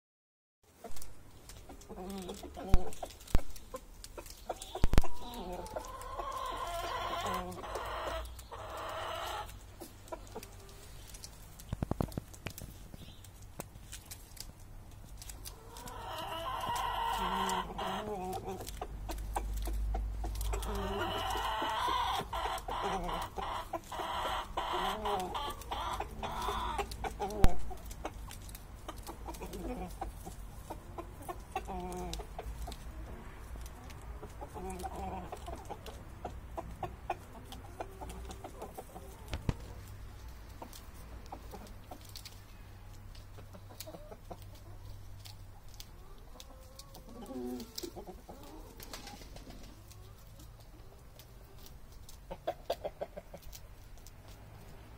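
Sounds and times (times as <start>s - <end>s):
chickens clucking: 0.7s - 54.9s.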